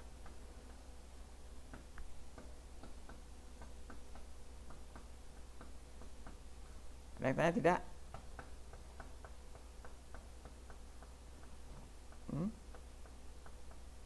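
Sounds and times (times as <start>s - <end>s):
low steady hum: 0.0s - 14.0s
faint ticking: 8.0s - 14.0s.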